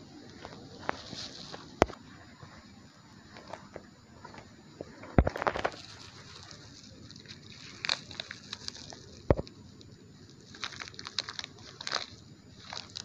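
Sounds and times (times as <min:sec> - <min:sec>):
earth crumbling: 0:04.9 - 0:13.0
plastic packet crackling: 0:05.4 - 0:09.3, 0:10.4 - 0:13.0.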